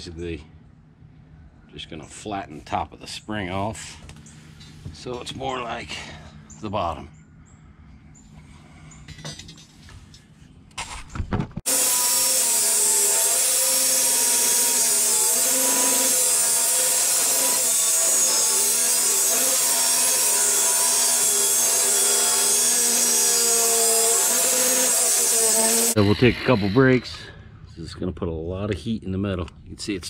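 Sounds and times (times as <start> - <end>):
angle grinder grinding metal: 11.7 - 27.2.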